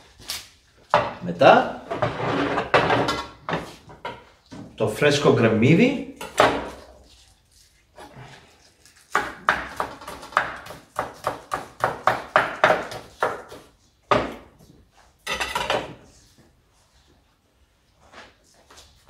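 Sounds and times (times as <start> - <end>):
knife chopping on wooden board: 9.1 - 14.5.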